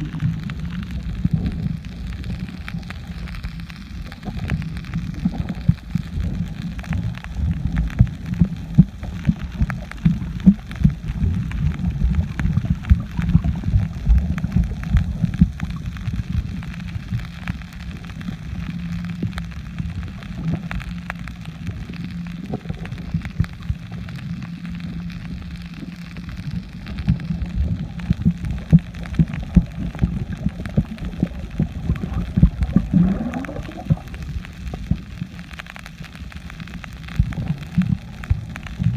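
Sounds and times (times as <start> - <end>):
underwater pops and crackles: 0.0 - 38.9
underwater rumble of moving water: 0.0 - 38.9.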